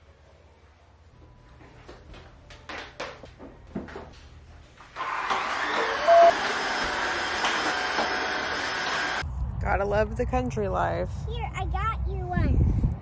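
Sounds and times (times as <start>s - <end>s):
floor cleaner whirring hum: 4.8s - 9.2s.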